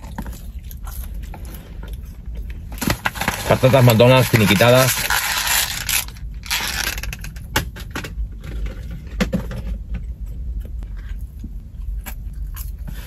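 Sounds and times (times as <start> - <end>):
paper packaging crinkling: 2.8 - 7.2.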